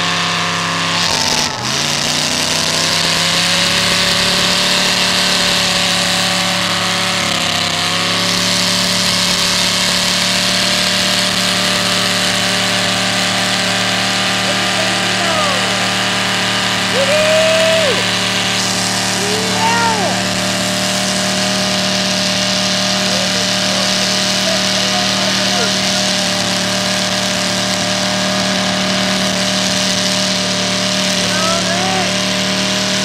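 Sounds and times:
tires spinning: 0:00.0 - 0:33.0
truck engine at high revs: 0:00.0 - 0:33.0
spectators whooping: 0:01.0 - 0:02.3, 0:16.8 - 0:20.4.

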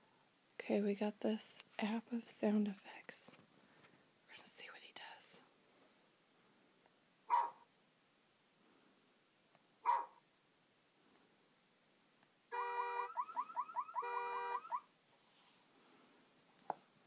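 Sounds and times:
car alarm sound effect: 0:12.5 - 0:14.8.

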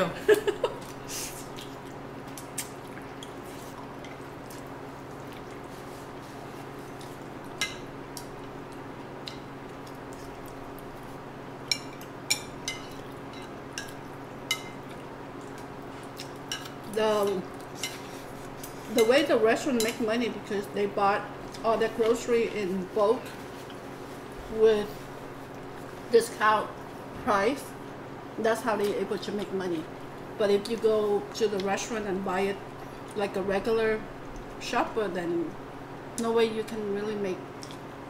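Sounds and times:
steady hum: 0:00.0 - 0:38.0.

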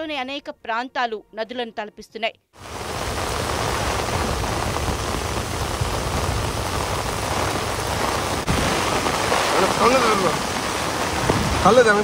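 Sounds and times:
heavy rain on road and trees: 0:02.6 - 0:12.0.

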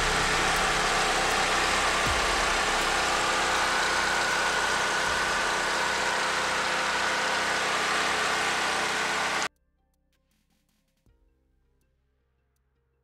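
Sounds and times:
car engine idling: 0:00.0 - 0:09.5
faint high whine: 0:00.0 - 0:09.5.

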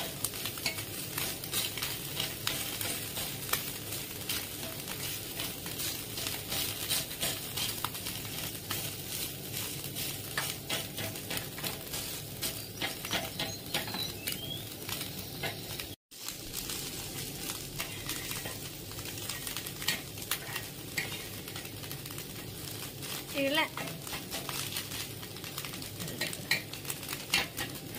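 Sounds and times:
fish sizzling in oil: 0:00.0 - 0:27.9
metal spatula scraping pan: 0:04.3 - 0:07.8, 0:17.8 - 0:18.7, 0:19.3 - 0:21.4.

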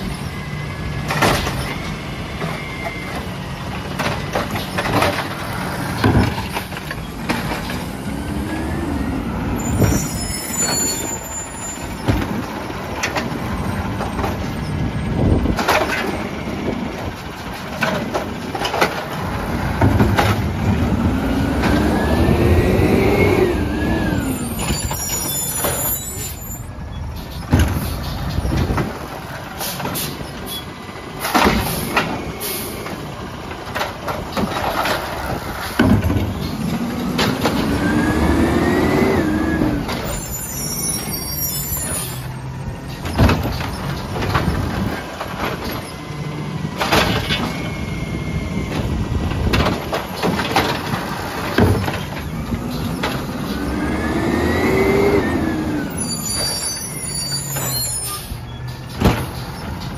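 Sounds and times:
truck engine rumbling: 0:00.0 - 0:59.9
cart and arm clanks: 0:01.0 - 0:08.4, 0:09.6 - 0:59.9
hydraulic whine: 0:21.0 - 0:26.7, 0:37.4 - 0:44.0
air brake hisses: 0:31.6 - 0:32.8.

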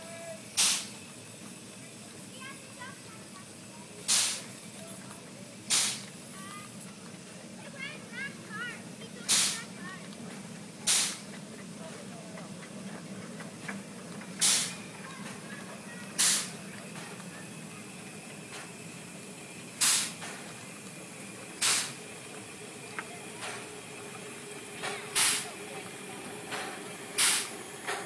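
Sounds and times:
steam hiss bursts: 0:00.0 - 0:04.8, 0:05.6 - 0:06.8, 0:08.2 - 0:09.8, 0:10.6 - 0:11.4, 0:14.3 - 0:28.0.

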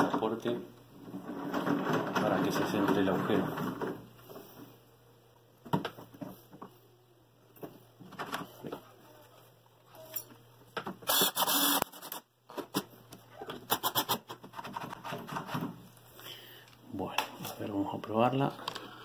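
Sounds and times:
cordless drill driving screws: 0:11.1 - 0:12.2.

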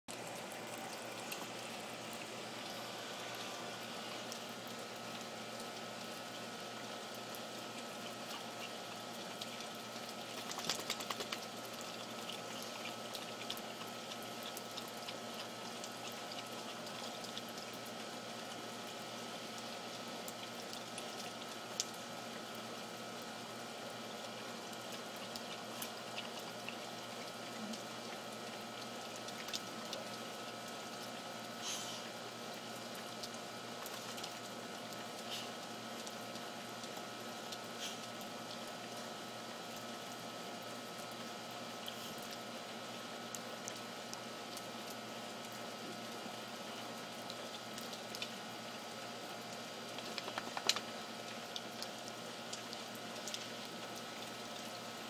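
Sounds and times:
rain on a wooden deck: 0:00.1 - 0:55.0
drips ticking: 0:04.2 - 0:18.7, 0:32.3 - 0:40.2, 0:47.0 - 0:54.7.

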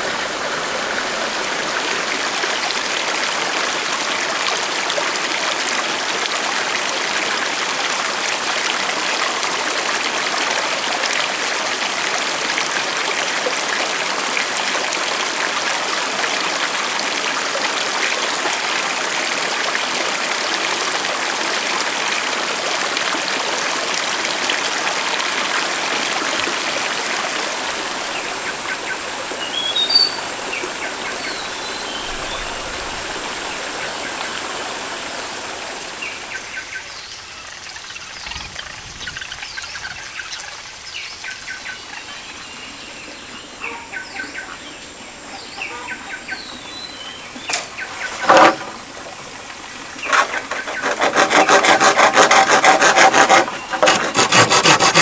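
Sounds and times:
stream water running: 0:00.0 - 0:55.0
birds chirping: 0:28.0 - 0:34.4, 0:36.0 - 0:48.9.

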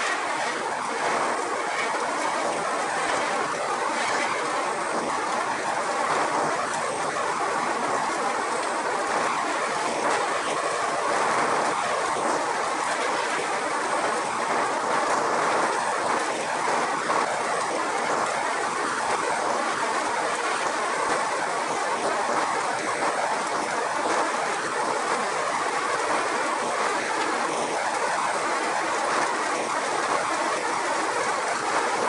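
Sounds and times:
walnut peeling machine running: 0:00.0 - 0:23.2.

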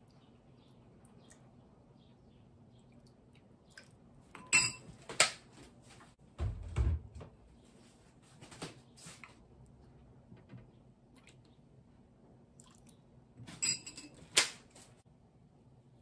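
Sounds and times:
metal spoon clinking glass bowl: 0:04.4 - 0:04.9.

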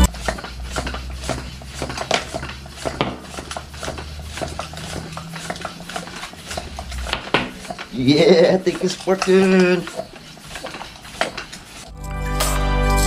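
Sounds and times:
low hum: 0:00.0 - 0:01.2
hands working tire on rim: 0:00.0 - 0:11.9.

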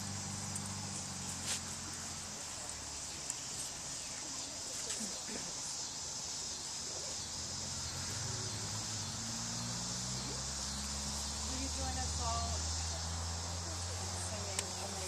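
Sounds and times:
crickets chirring: 0:00.0 - 0:15.0.

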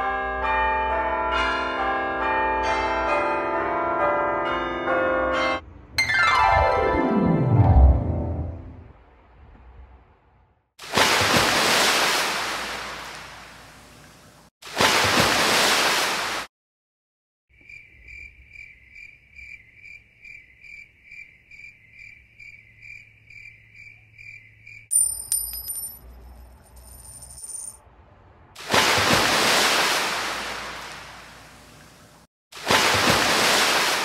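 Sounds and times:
insect-like chirping: 0:17.6 - 0:24.9
surf-like rushing noise: 0:28.6 - 0:31.2, 0:32.6 - 0:34.0.

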